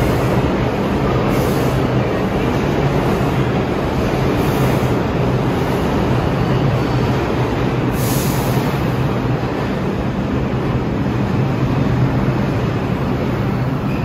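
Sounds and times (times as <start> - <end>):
subway train rumbling: 0.0 - 14.0.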